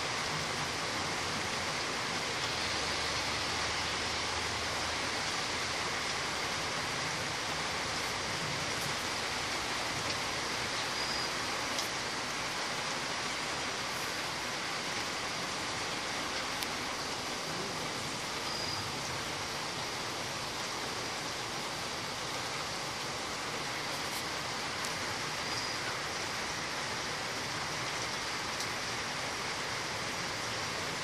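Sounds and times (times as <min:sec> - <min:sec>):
rain falling: 0:00.0 - 0:31.0
faint ticks: 0:11.7 - 0:12.0, 0:28.0 - 0:28.8.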